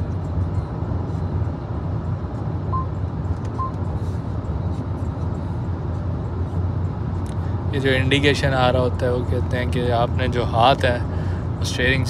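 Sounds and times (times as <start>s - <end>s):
road and wind noise in car: 0.0s - 12.0s
short electronic beeps: 2.7s - 3.0s, 3.6s - 3.8s.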